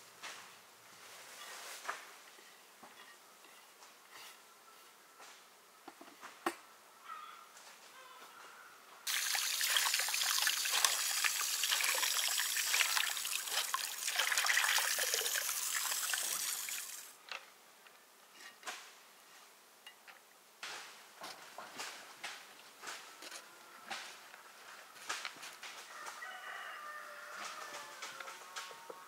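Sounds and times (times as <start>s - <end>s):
hose water running into colander: 9.1s - 17.2s.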